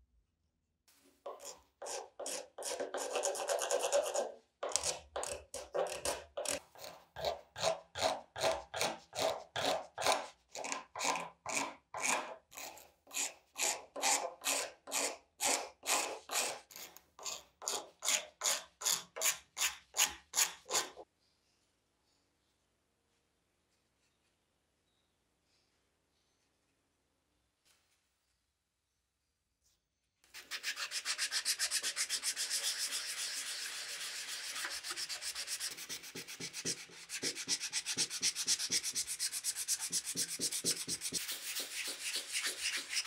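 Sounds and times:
hand scraper scraping wood: 1.2 - 21.0, 30.4 - 43.0.

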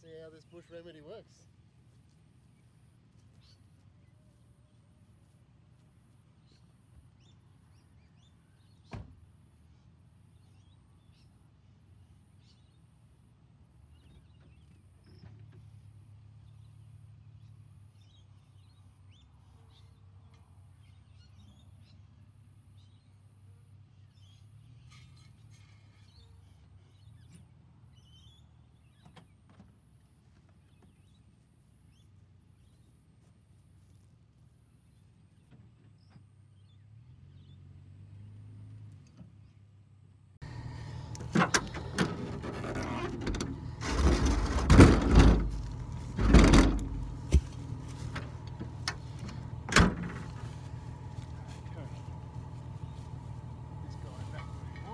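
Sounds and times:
low engine rumble: 35.3 - 54.9
car door shutting: 40.5 - 51.9.

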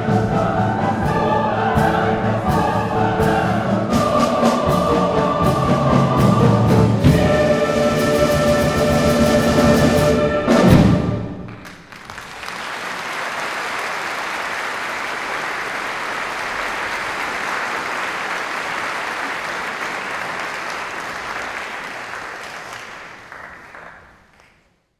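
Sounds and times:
audience applauding: 11.4 - 24.8.

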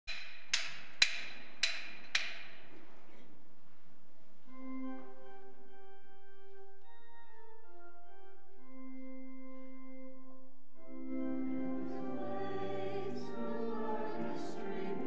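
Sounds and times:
church organ chords: 4.5 - 15.0.

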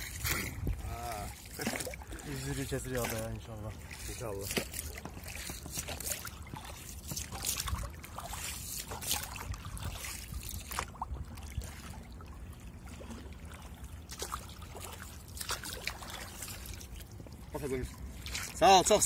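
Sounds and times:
oars pulling through water: 0.0 - 19.0
water splashing: 0.0 - 19.0
water trickling off oar blades: 0.0 - 19.0.

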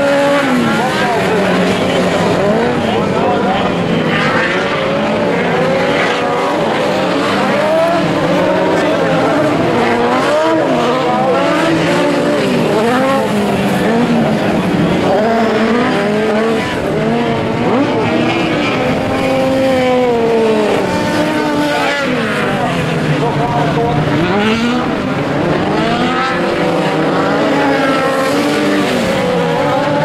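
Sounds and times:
racing car engines revving: 0.0 - 30.0.

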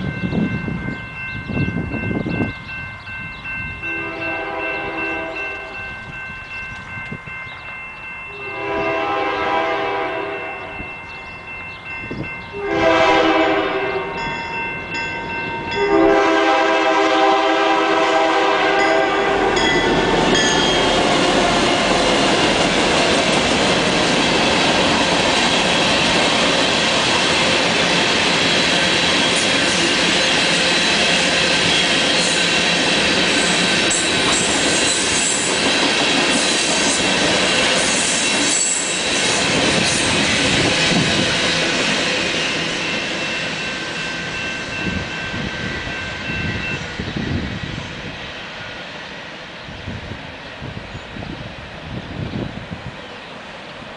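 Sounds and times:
locomotive air horn blasts: 3.9 - 5.7, 8.4 - 10.8, 12.5 - 14.3, 15.7 - 19.9
train wheels clattering on rails: 18.0 - 49.4.

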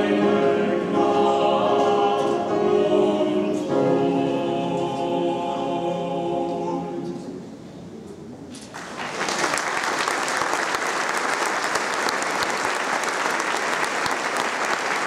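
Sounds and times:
choir chord: 0.0 - 7.5
audience applause: 8.7 - 15.0.

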